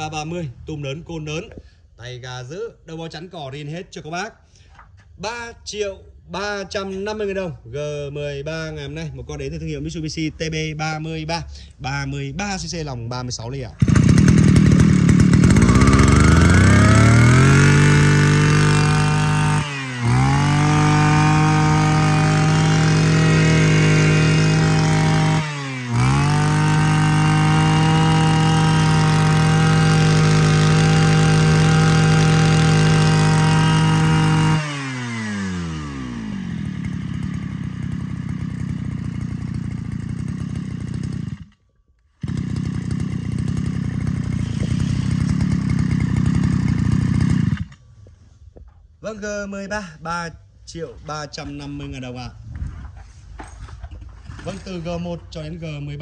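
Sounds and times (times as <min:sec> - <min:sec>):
brush cutter engine revving: 0:13.7 - 0:41.6, 0:42.2 - 0:47.8.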